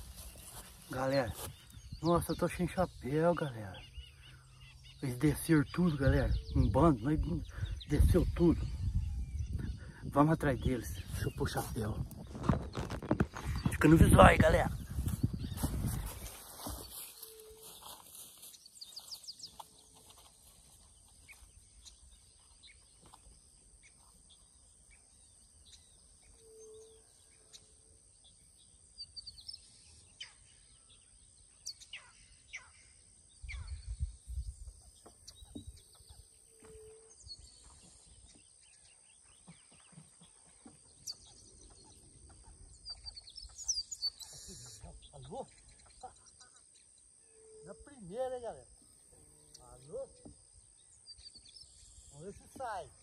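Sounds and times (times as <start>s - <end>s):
short soft calls: 44.0s - 45.4s.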